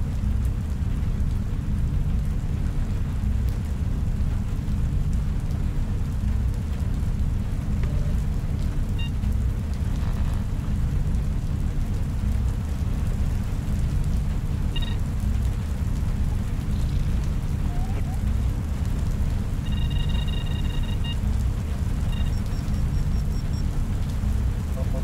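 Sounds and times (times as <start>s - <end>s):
deep rumbling drone: 0.0s - 25.0s
short electronic beeps: 14.7s - 15.0s, 19.6s - 21.2s, 22.1s - 23.7s.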